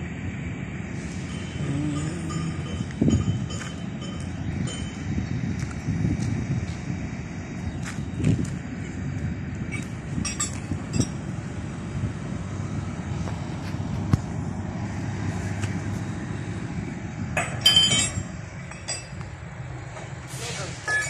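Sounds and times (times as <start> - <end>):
heavy machinery rumble: 0.0 - 21.0
metal-on-metal clinks: 1.3 - 5.1, 9.7 - 11.2, 17.4 - 19.2.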